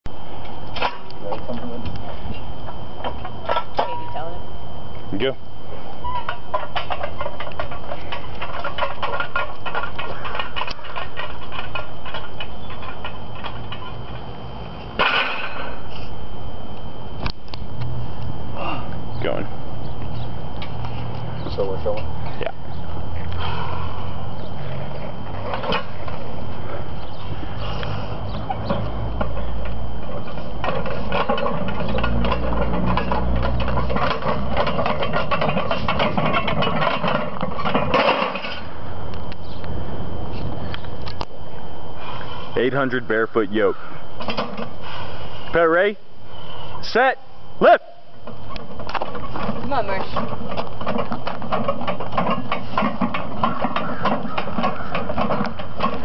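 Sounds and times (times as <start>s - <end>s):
metal frame and plates clanking: 0.7s - 4.4s, 6.0s - 16.0s, 20.1s - 38.9s, 42.2s - 44.9s, 47.6s - 56.0s.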